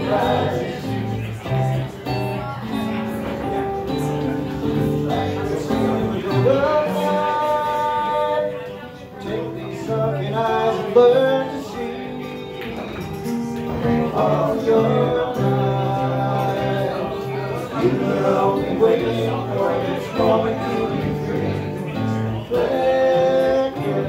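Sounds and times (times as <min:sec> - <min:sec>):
acoustic guitar: 0:00.0 - 0:24.0
man singing into microphone: 0:04.7 - 0:13.0, 0:13.7 - 0:24.0.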